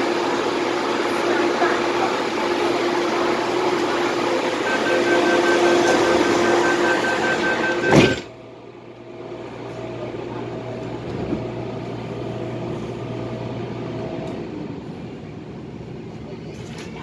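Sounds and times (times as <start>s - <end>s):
train equipment low hum: 0.0s - 16.8s
high electronic tone: 3.1s - 8.3s
train doors slamming shut: 7.3s - 8.3s.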